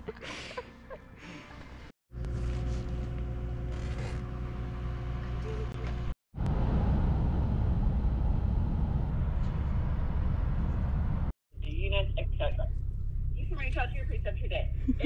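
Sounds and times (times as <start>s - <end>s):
low rumble: 4.4s - 15.0s.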